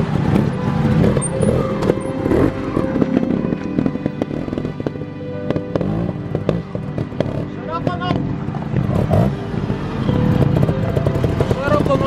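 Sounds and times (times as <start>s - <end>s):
motorcycle engines popping: 0.0s - 12.0s
music playing: 0.0s - 12.0s.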